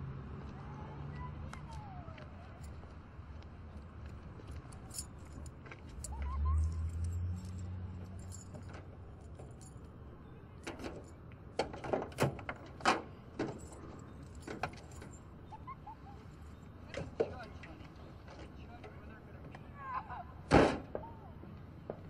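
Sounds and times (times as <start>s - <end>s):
keys jangling in a lock: 4.5s - 9.9s, 13.4s - 15.3s.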